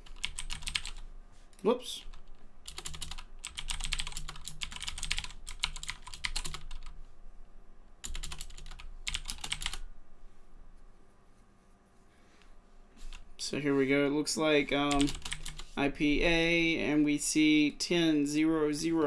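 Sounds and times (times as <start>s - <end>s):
typing on computer keyboard: 0.0s - 1.0s, 2.0s - 6.9s, 8.0s - 9.8s, 14.9s - 15.6s.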